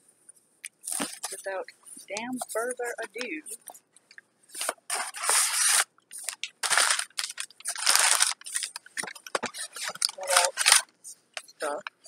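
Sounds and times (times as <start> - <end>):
cardboard box being torn open: 6.6 - 8.4.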